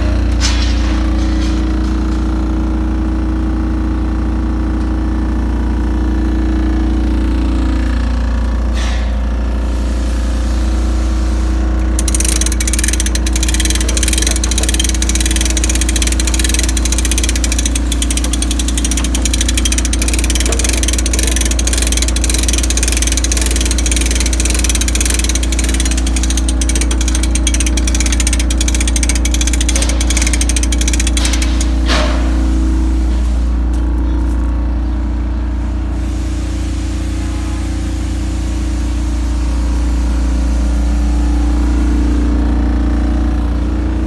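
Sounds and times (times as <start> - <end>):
generator engine humming: 11.6 - 44.0.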